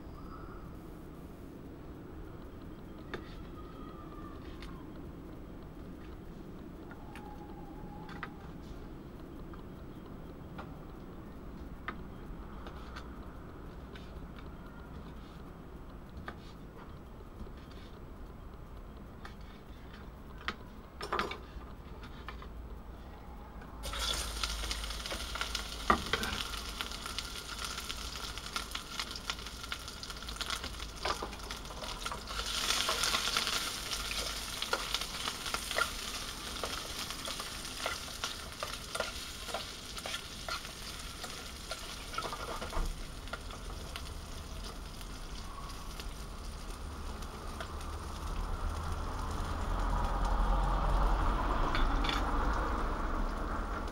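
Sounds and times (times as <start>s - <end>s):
sausage sizzling in a pan: 23.8s - 49.8s
clicks and scrapes in a pan: 30.4s - 43.6s.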